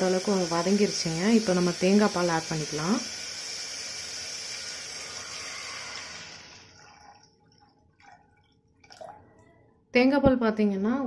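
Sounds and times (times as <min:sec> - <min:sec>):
spices sizzling in oil: 0:00.0 - 0:06.6
faint liquid sounds: 0:00.0 - 0:09.9
coconut milk pouring: 0:00.2 - 0:09.6.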